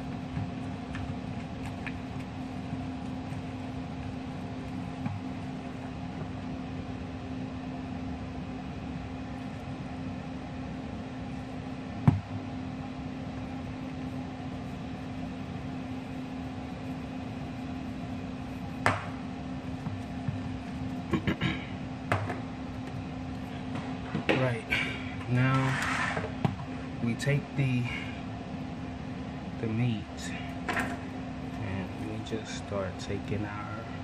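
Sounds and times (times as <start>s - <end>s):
steady mechanical hum: 0.0s - 34.0s.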